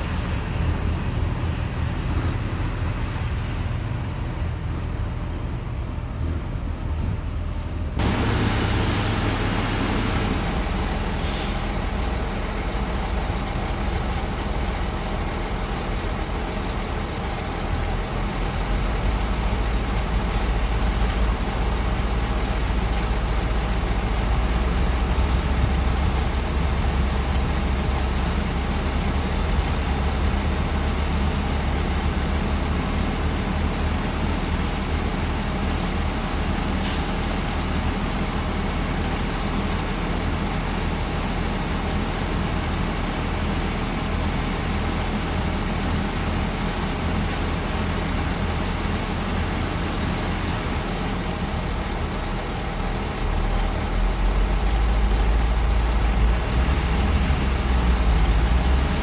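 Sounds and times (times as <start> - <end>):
truck diesel engine running: 0.0 - 59.0
air hissing: 8.0 - 12.0.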